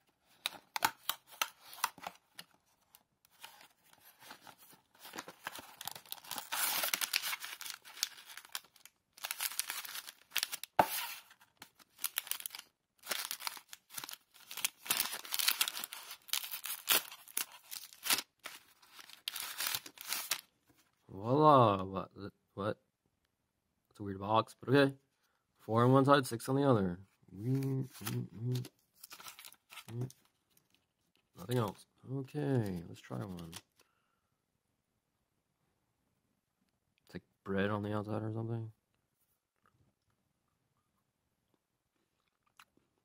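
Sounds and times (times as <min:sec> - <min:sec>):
plastic wrapper crinkling and tearing: 0:00.3 - 0:20.5, 0:27.5 - 0:30.8
cardboard box being opened: 0:03.4 - 0:08.6, 0:09.2 - 0:11.4.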